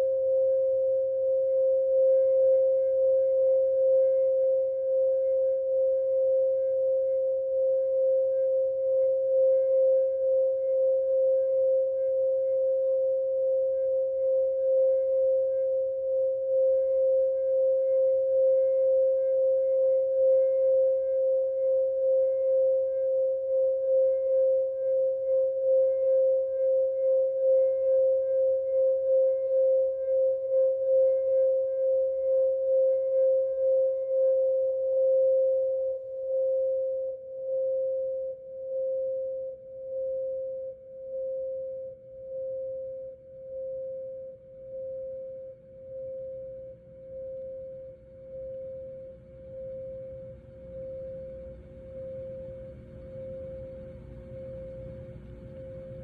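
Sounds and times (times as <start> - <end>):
crystal singing bowl tone: 0.0 - 56.0.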